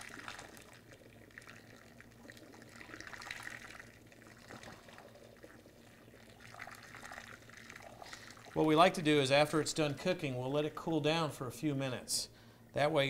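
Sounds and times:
liquid trickling and splashing: 0:00.0 - 0:09.0.

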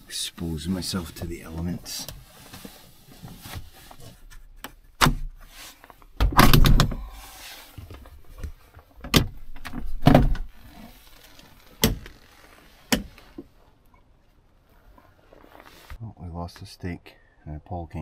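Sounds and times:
glass hatch clunking: 0:06.2 - 0:07.1, 0:09.0 - 0:10.6.

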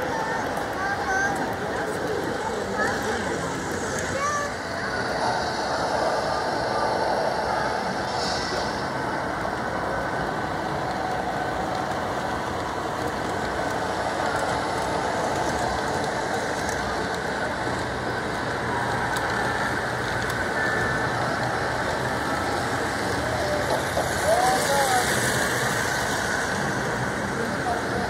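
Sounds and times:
model trains rolling on track: 0:00.0 - 0:28.0.

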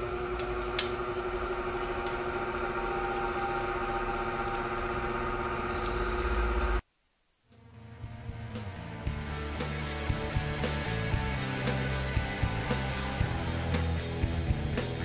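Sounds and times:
motor hum: 0:00.0 - 0:06.8.

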